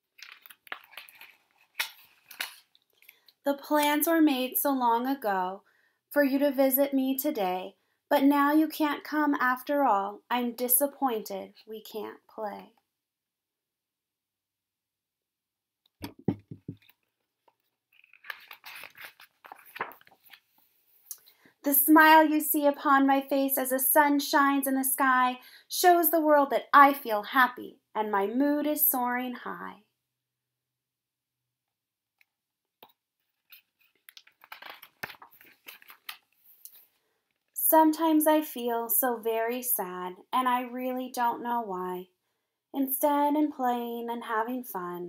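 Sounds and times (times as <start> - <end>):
page turning: 0.0 - 2.8, 16.0 - 20.7, 32.8 - 37.4
soft knocks on book: 16.0 - 16.8.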